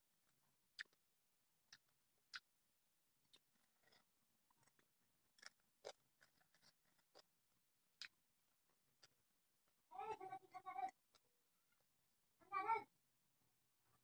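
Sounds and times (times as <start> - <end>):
chewing and lip smacks: 0.2 - 1.0, 1.7 - 2.5, 3.2 - 9.8.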